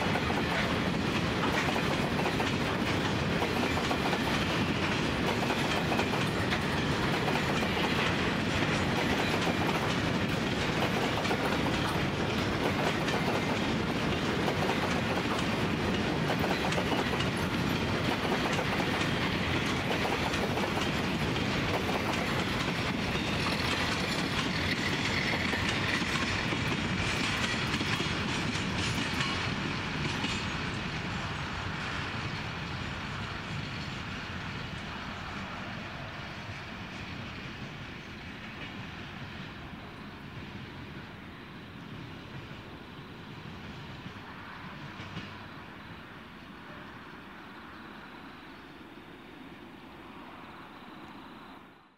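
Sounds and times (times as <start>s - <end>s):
train wheels clattering on rail joints: 0.0s - 35.4s.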